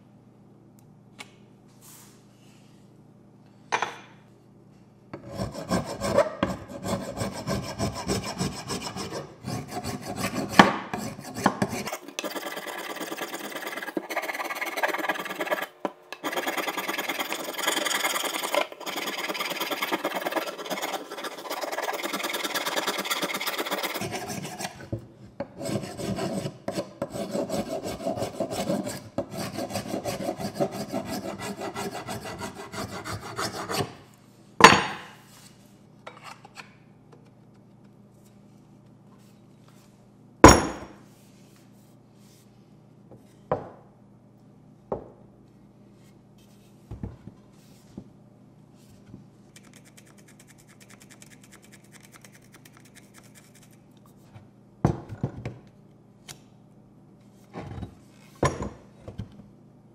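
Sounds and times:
file scraping wood: 0:05.2 - 0:24.9, 0:25.5 - 0:34.0.

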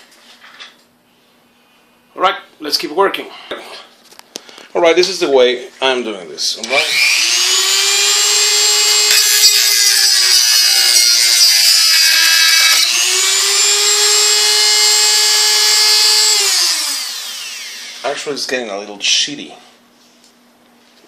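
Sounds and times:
rotary tool whining: 0:06.7 - 0:18.3.

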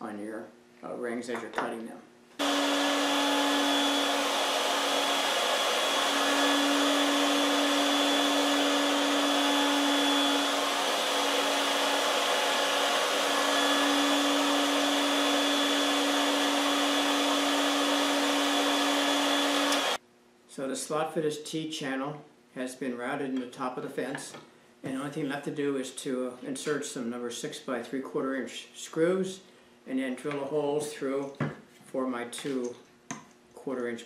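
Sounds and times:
router cutting wood: 0:02.4 - 0:20.0.

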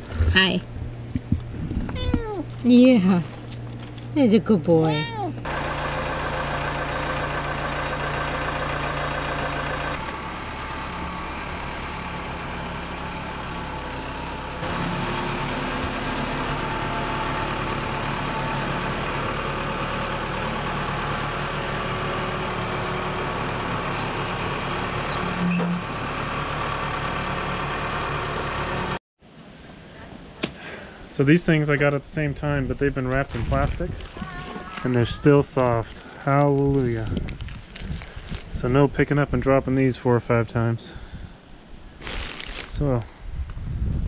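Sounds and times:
diesel engine running: 0:00.0 - 0:29.0.

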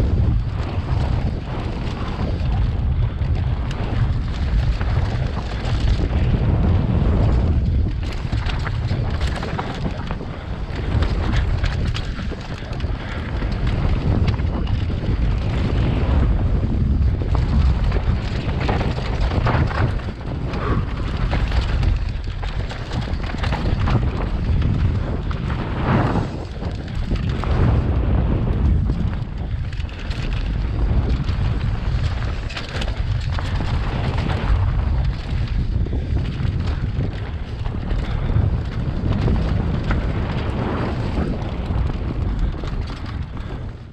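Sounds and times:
tyre noise on dirt: 0:00.0 - 0:43.8
bike knocks and rattles: 0:00.0 - 0:43.9
wind buffeting microphone: 0:00.0 - 0:43.9.

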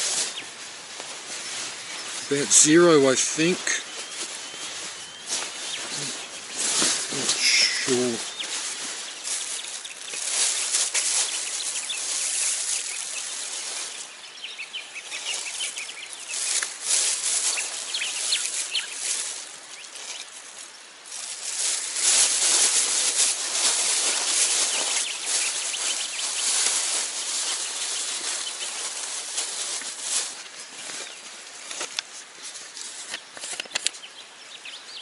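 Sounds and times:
plastic bag crinkling: 0:00.0 - 0:34.0.

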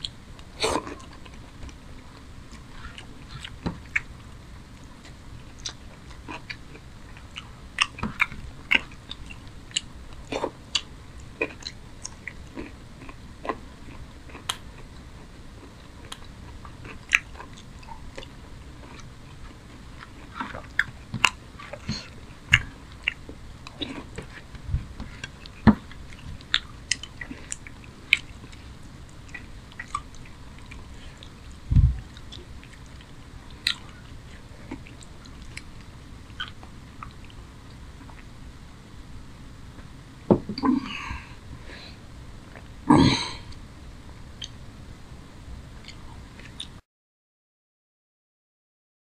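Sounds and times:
chewing and wet mouth smacks: 0:02.2 - 0:04.1, 0:05.0 - 0:14.6, 0:25.0 - 0:38.3, 0:45.8 - 0:46.8
dull low thump: 0:31.7 - 0:32.0.

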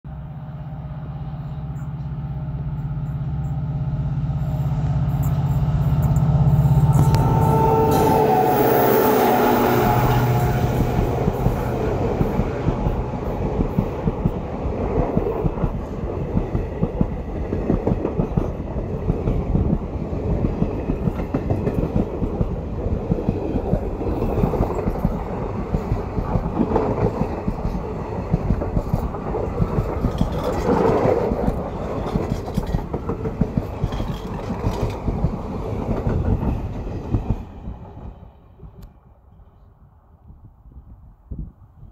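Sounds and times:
diesel locomotive engine drone: 0:00.0 - 0:40.2
train wheels clickety-clack: 0:10.1 - 0:39.0.

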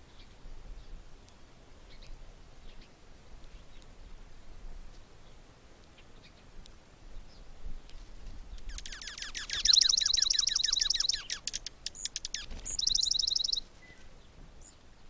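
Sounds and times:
songbirds singing: 0:00.0 - 0:15.0
high buzzy bird trill: 0:08.6 - 0:14.1.

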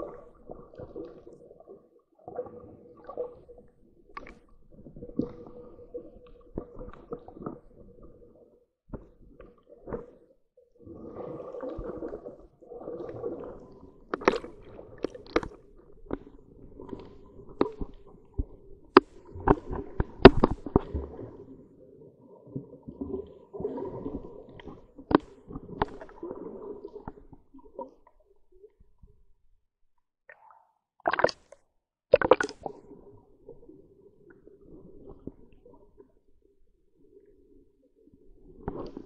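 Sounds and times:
sharp underwater clicks: 0:18.9 - 0:20.9, 0:30.3 - 0:32.7.

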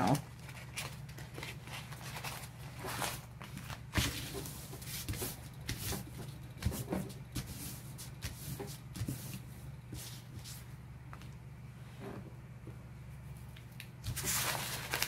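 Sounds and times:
paper crinkling and rustling: 0:00.1 - 0:10.6, 0:14.0 - 0:15.0.

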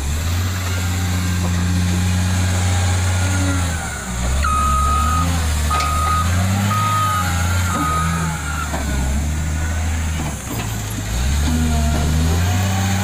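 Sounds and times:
wheel loader diesel engine: 0:00.0 - 0:13.0
reversing alarm beep: 0:04.4 - 0:08.7.

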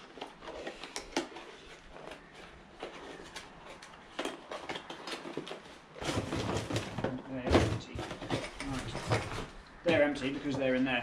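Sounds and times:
rustling scrape: 0:00.0 - 0:07.0
parts and packaging rummaged: 0:00.0 - 0:11.0.

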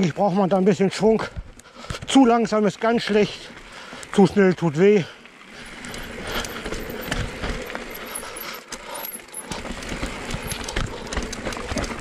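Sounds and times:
bike tyres rattling on stone: 0:05.5 - 0:12.0
wheels thumping off rocks: 0:05.7 - 0:12.0
bike knocks and clinks: 0:08.8 - 0:12.0.

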